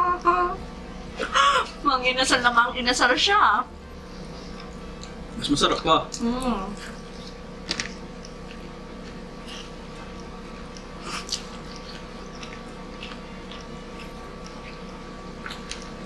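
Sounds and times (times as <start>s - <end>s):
steady hum: 0.0s - 16.0s
people chewing food: 4.0s - 16.0s.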